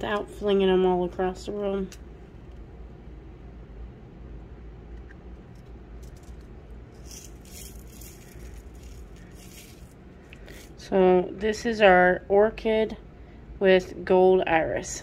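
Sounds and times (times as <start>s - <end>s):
low steady hum: 0.0s - 15.0s
beads trickling and rattling: 5.5s - 10.8s.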